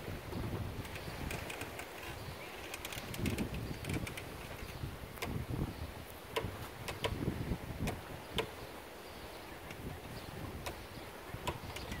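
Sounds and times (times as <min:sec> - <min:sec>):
sharp clicks and knocks: 0:06.3 - 0:07.2, 0:11.4 - 0:12.0.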